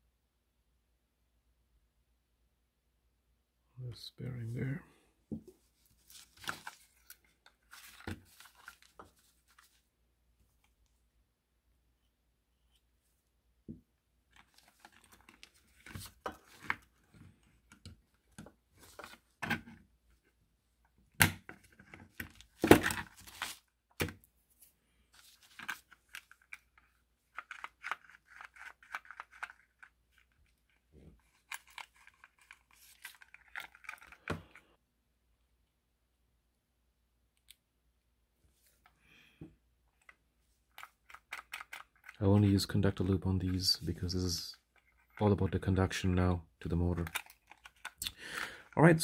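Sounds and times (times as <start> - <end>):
paper rustling: 5.8 - 9.8, 21.6 - 23.7, 25.2 - 34.4
model parts clicking and knocking: 40.8 - 42.2.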